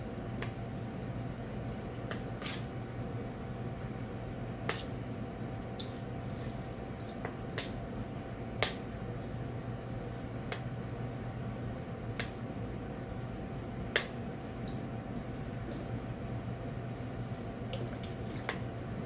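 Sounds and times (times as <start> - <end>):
chopsticks tossing noodles in bowl: 1.3 - 8.0.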